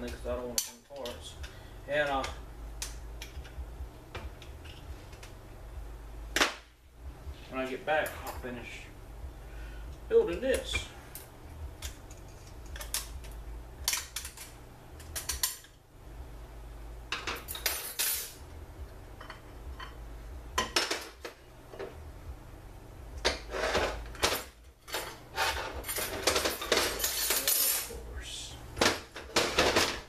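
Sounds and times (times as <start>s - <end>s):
low steady hum: 0.0s - 30.0s
steel parts clinking and clanking: 10.6s - 15.7s, 23.7s - 28.0s.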